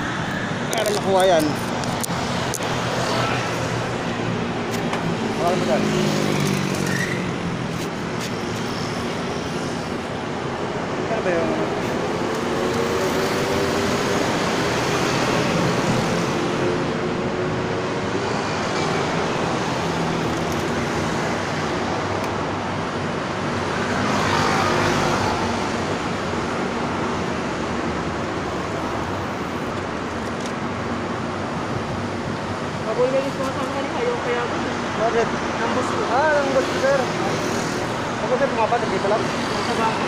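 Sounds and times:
road traffic passing: 0.0s - 40.0s
loud vehicle passing: 1.4s - 10.3s, 11.4s - 22.1s.

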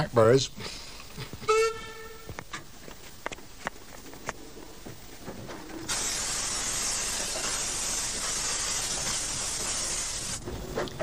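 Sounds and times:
steam locomotive hissing steam: 5.9s - 10.4s.

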